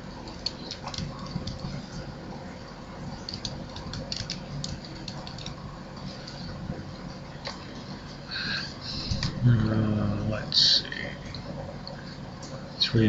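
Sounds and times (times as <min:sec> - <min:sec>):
low steady hum: 0:00.0 - 0:13.0
keyboard keystrokes: 0:00.3 - 0:01.7, 0:03.2 - 0:05.6.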